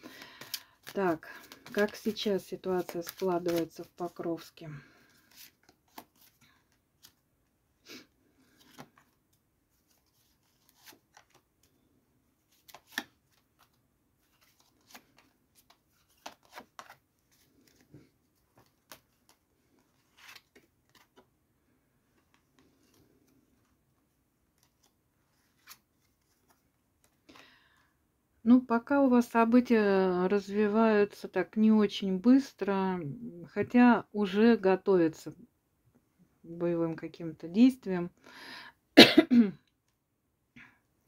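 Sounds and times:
cards shuffled and dealt: 0.0 - 7.2, 8.4 - 11.8, 12.5 - 21.3, 24.5 - 27.4.

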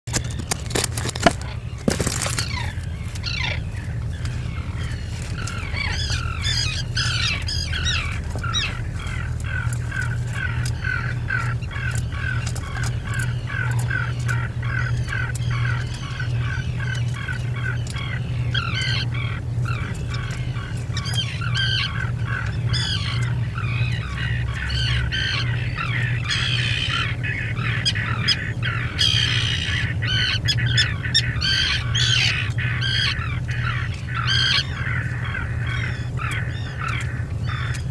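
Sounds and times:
steady low hum: 0.0 - 37.9
seabirds calling: 0.1 - 37.9.

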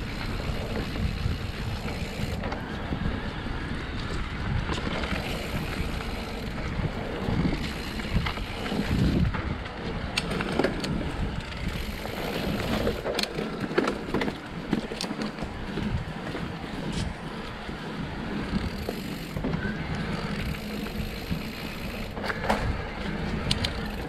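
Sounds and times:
bike rattling over rough ground: 0.0 - 24.0
bike tyres rolling on dirt: 0.0 - 24.0
wind buffeting microphone: 0.0 - 24.0.

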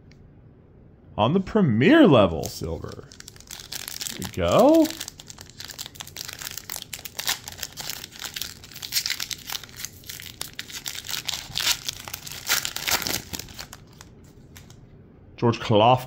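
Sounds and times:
foil wrapper crinkling: 2.4 - 14.8
foil wrapper ripping: 2.8 - 14.8.

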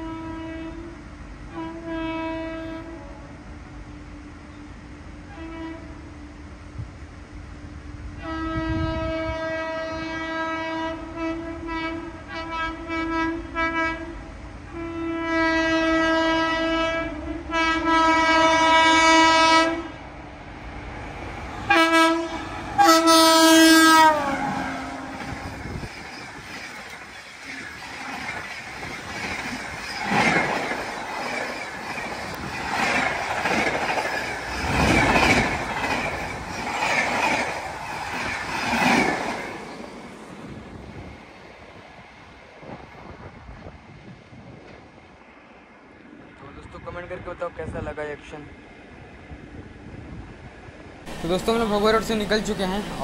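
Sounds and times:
train horn blasts: 0.0 - 3.4, 5.2 - 6.1, 8.2 - 20.0, 21.6 - 25.9
train wheels clattering: 24.3 - 40.1.

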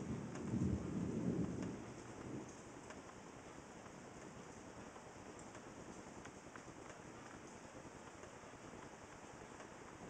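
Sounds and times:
rolling thunder rumble: 0.0 - 2.5.

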